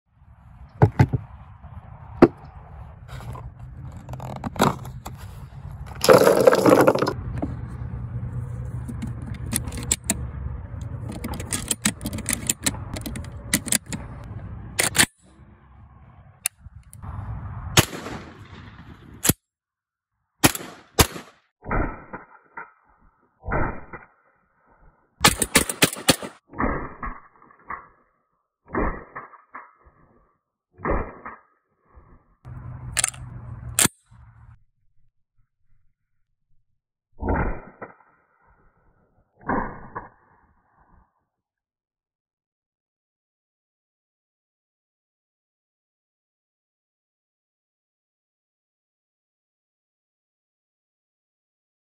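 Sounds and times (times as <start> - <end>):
shotgun clicks and metallic clacks: 8.9 - 15.2, 20.4 - 21.3, 25.2 - 26.4, 32.8 - 34.1.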